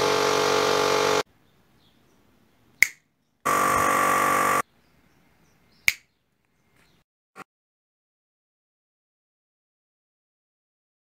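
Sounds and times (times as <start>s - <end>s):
finger snaps: 2.8s - 3.0s, 5.8s - 6.1s.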